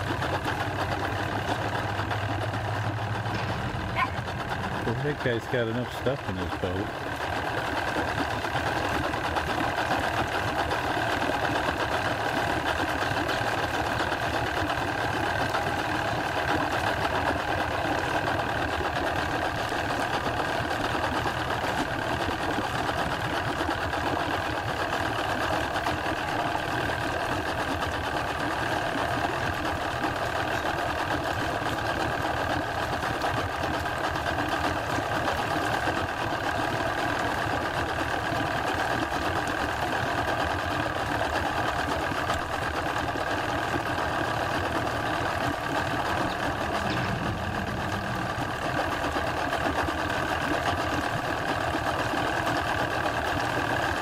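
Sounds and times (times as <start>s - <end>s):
outboard motor idling: 0.0s - 54.0s.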